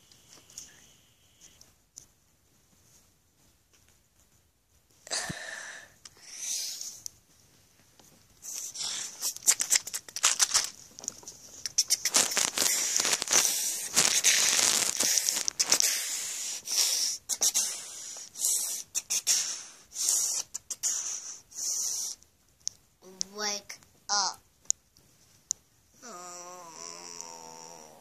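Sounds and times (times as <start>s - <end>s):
plush fabric rustling on phone: 12.1s - 15.7s.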